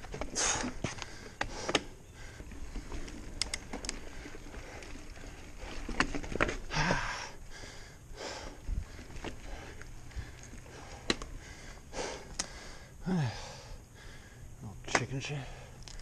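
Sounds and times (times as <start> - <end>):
bike clicks and rattles: 0.0 - 12.9, 14.8 - 16.0
person breathing hard: 6.7 - 14.6.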